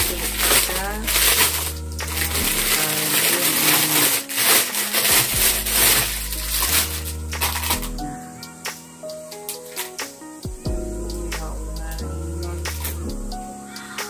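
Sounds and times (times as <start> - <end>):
background music with bass: 0.0 - 3.9, 5.2 - 14.0
plastic bag crinkling: 0.0 - 7.9, 9.6 - 10.0.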